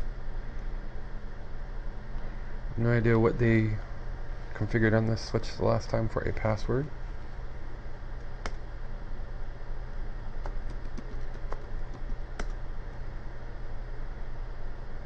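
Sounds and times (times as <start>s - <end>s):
steady low hum: 0.0s - 15.0s
keyboard keys clicking: 10.4s - 12.6s.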